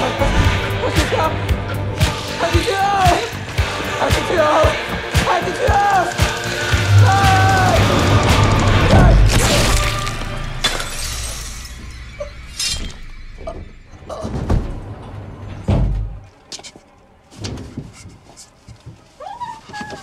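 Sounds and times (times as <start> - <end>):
dramatic film music: 0.0 - 17.2
loud shattering crash: 5.6 - 15.1.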